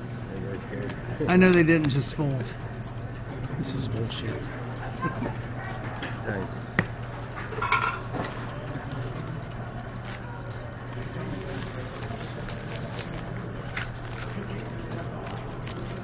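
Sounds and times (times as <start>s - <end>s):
poker chips clicking: 8.7s - 16.0s.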